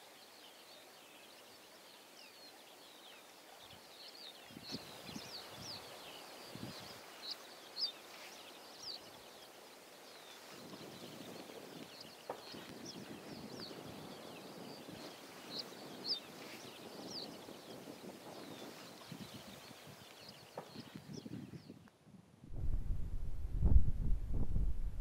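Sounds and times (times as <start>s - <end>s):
small birds chirping: 0.0s - 21.9s
low rushing background: 22.4s - 25.0s.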